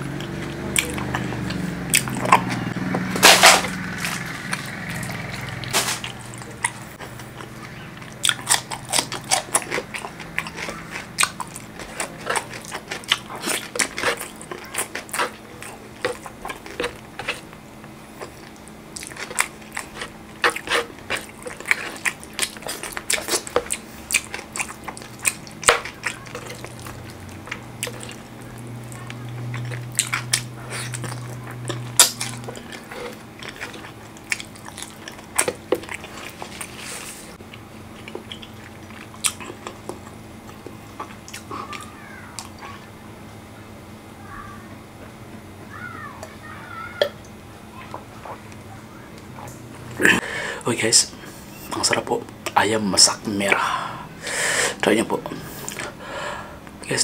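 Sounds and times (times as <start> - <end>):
steady low hum: 0.0 - 57.0
wet chewing and finger-licking: 0.1 - 3.1, 4.0 - 42.9.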